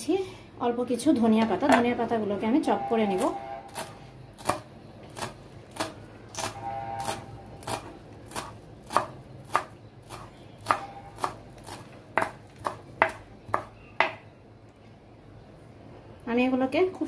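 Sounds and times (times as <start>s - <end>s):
knife chopping on a board: 3.7s - 14.2s.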